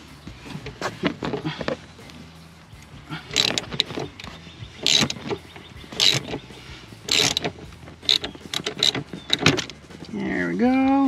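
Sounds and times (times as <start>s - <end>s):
hand ratchet clicking: 3.2s - 9.8s.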